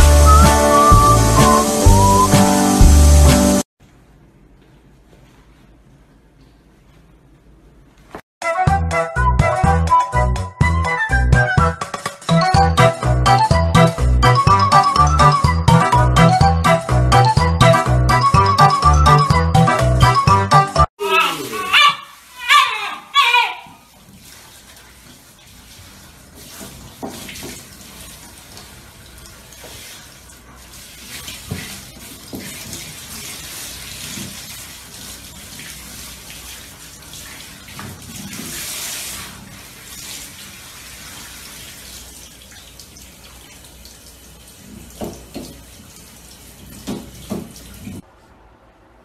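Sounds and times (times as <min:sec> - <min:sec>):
water spraying from shower head: 0:00.0 - 0:03.6, 0:23.9 - 0:48.0.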